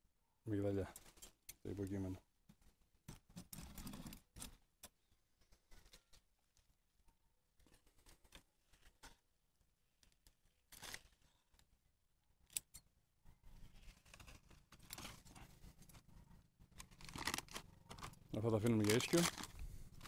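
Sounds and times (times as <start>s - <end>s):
faint rustles and clicks: 0.9s - 6.8s, 13.3s - 20.0s.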